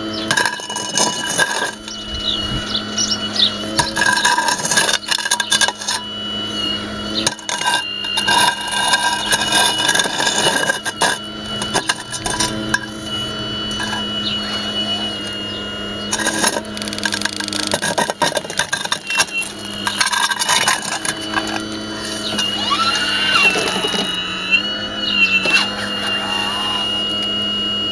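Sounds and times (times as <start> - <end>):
motor whine: 0.0 - 27.9
metal bucket scraping gravel: 0.1 - 2.4, 3.0 - 15.4, 16.0 - 24.2.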